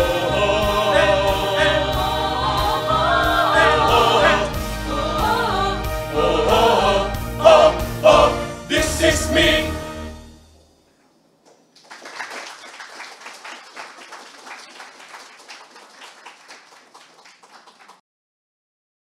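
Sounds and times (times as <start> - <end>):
choir singing final chord: 0.0 - 10.1
audience applauding: 11.5 - 18.0.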